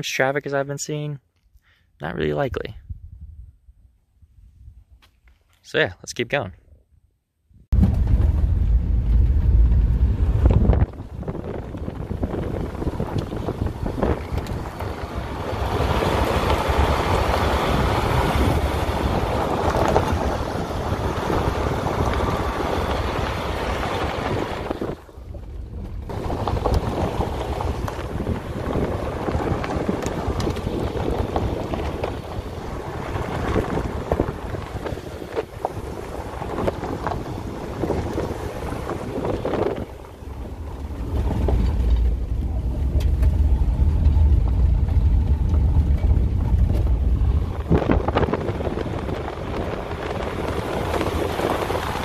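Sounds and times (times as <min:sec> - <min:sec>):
wind buffeting microphone: 0:02.7 - 0:05.0, 0:07.7 - 0:52.0
tyres on gravel road: 0:07.7 - 0:52.0.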